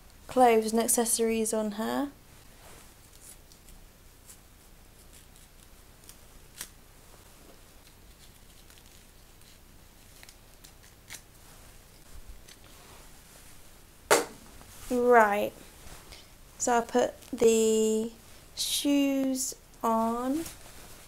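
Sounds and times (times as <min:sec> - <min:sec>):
plastic bag rustling: 0:20.3 - 0:21.0.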